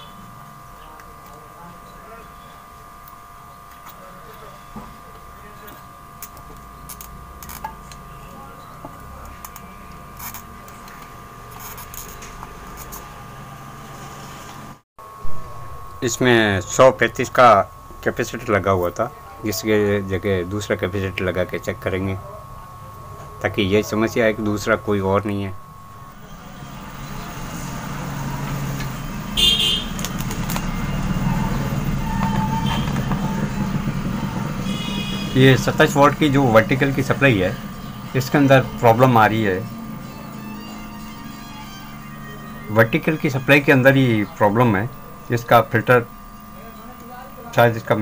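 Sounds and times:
faint steady whine: 0.0 - 48.0
low hum: 19.7 - 48.0
motor vehicle rumbling: 25.6 - 47.6
high-pitched toot: 26.0 - 46.4
sharp clicks: 29.9 - 30.9.

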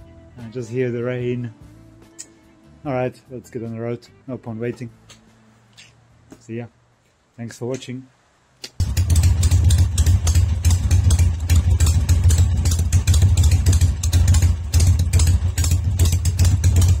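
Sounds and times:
motorcycle engine idling: 8.8 - 17.0.

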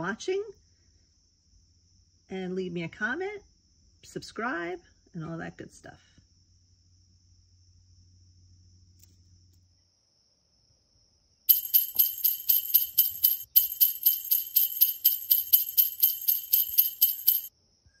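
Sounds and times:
jingle bells shaken: 11.5 - 17.5.

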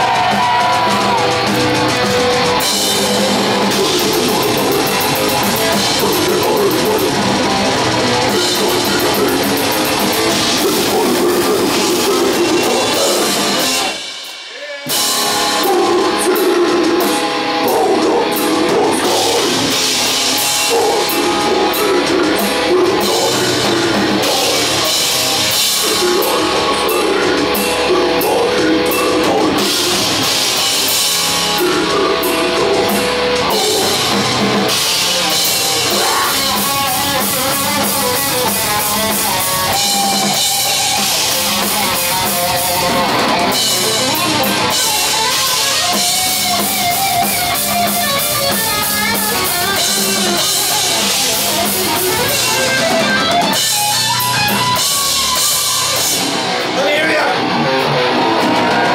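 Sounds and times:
bass guitar: 0.0 - 58.9
distorted electric guitar: 0.0 - 58.9
drum kit: 0.0 - 58.9.

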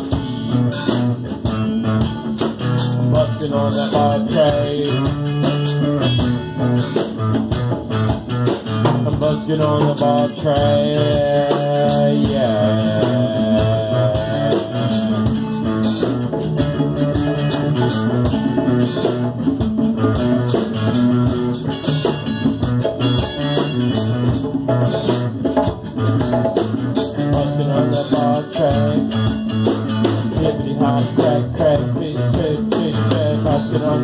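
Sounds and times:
djembe hand drumming: 0.0 - 34.0
electric guitars playing a groove: 0.0 - 34.0.

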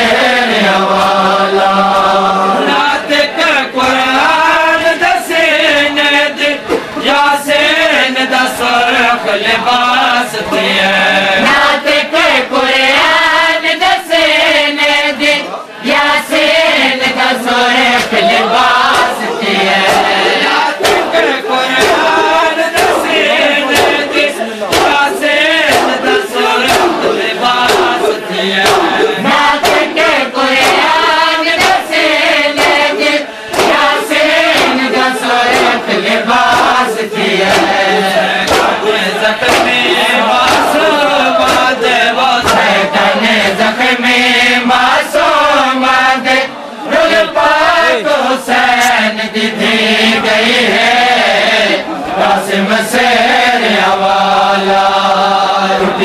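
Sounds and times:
lead reciter chanting: 0.0 - 56.0
men chanting a lament: 0.0 - 56.0
hands beating on chests: 18.8 - 36.8, 37.4 - 42.8.

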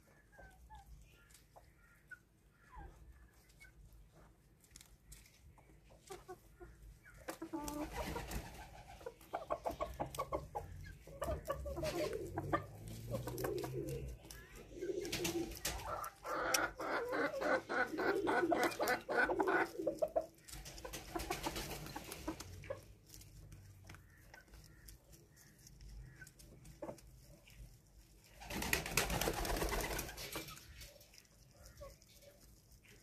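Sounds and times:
doves cooing: 7.5 - 22.9.

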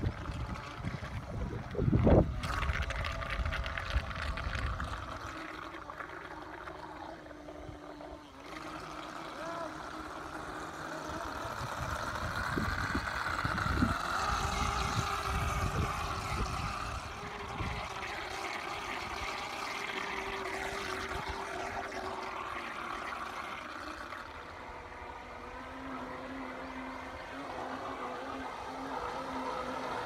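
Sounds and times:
low rumbling gusts: 0.0 - 5.2, 11.5 - 19.4
toy boat motor whining: 0.0 - 30.0.

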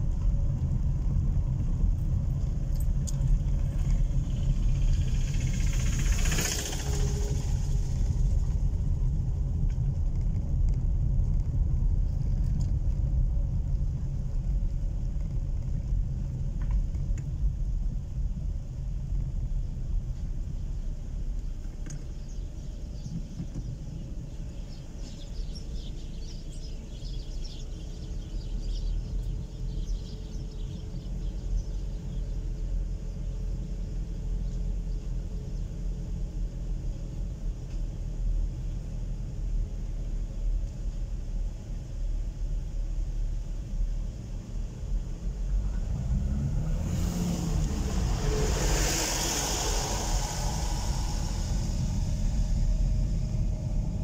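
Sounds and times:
car engine and tyres rumbling: 0.0 - 54.0
rushing noise: 4.2 - 9.2, 45.5 - 54.0.

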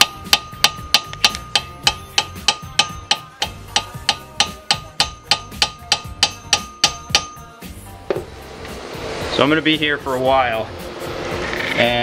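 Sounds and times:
hammer striking metal rotor: 0.0 - 8.3.

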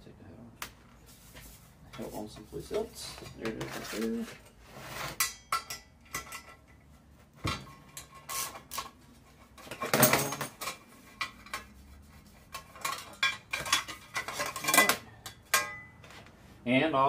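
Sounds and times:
sheet metal clatter: 7.5 - 11.7, 12.5 - 15.9.

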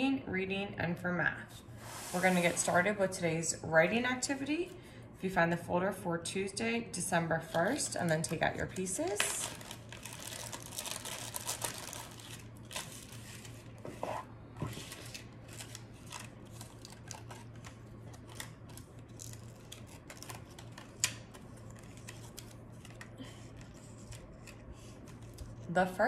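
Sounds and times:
paper cards rustling: 7.4 - 25.7
plastic bag crinkling: 7.5 - 13.7, 14.8 - 24.5.

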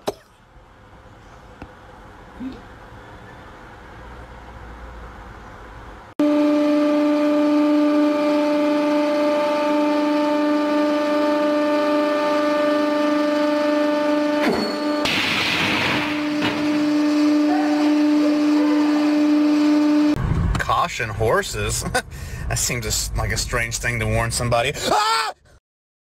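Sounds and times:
horn-like honk of escaping air: 6.2 - 15.1, 15.8 - 20.2.

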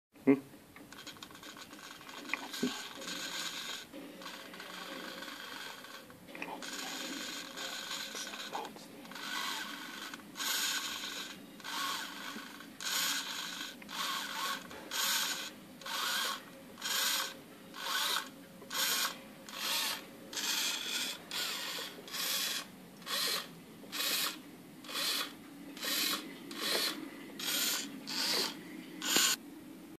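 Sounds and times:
servo whirring through gears: 17.9 - 29.4.

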